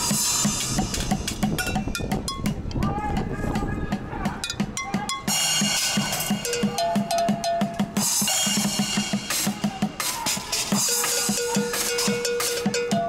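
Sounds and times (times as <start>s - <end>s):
bucket drums beat: 0.0s - 13.0s.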